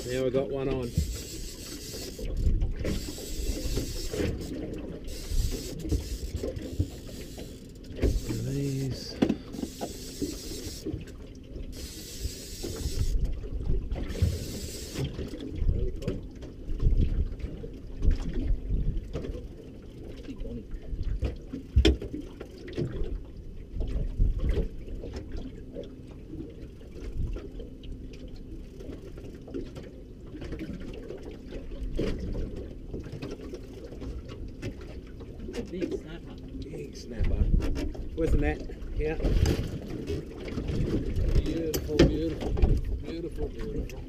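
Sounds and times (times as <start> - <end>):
water lapping against boat hull: 0.0 - 44.0
wind rumble on microphone: 2.2 - 4.5, 12.8 - 14.5, 15.2 - 19.4, 22.9 - 24.9, 37.0 - 44.0
knocks on boat: 41.2 - 42.8.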